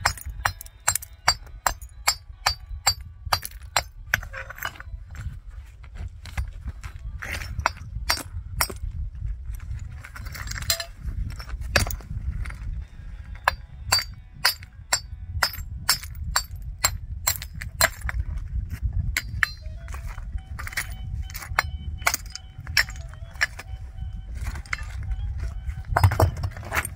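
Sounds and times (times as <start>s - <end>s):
hard objects clinking and knocking: 0.0s - 4.9s, 10.2s - 12.0s, 20.6s - 23.8s, 25.9s - 26.9s
steady low rumble: 0.0s - 26.9s.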